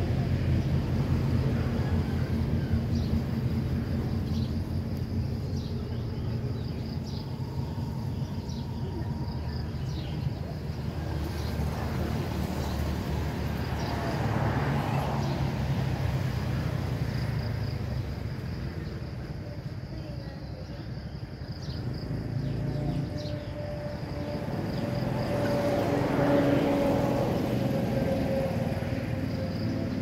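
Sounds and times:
steady low rumble: 0:00.0 - 0:13.6.

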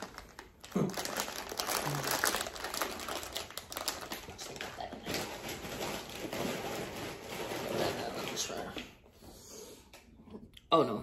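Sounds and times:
potato chips crunching: 0:00.0 - 0:08.0
foil bag crackling: 0:00.0 - 0:08.7.

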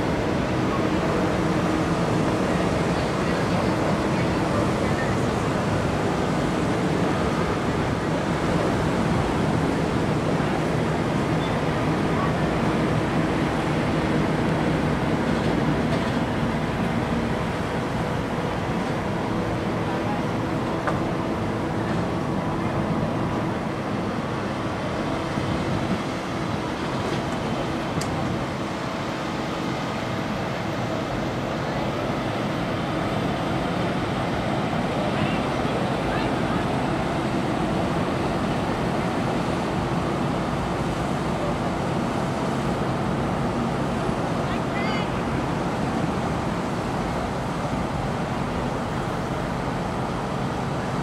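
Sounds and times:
engine and traffic rumble: 0:00.0 - 0:51.0.

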